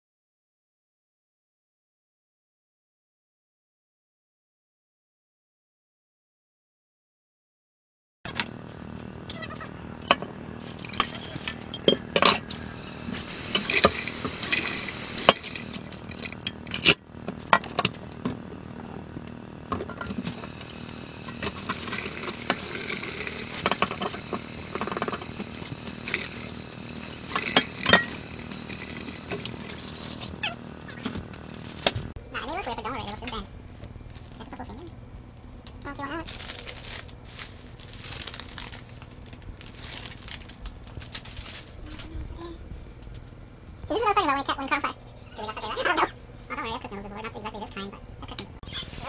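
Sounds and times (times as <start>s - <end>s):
tap running: 10.0s - 32.2s
dishes clinking in a sink: 27.3s - 28.2s.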